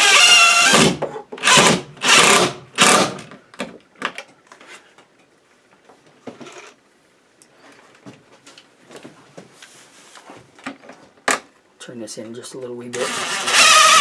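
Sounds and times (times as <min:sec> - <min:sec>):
cordless drill driving screw: 0:00.0 - 0:03.2, 0:13.0 - 0:14.0.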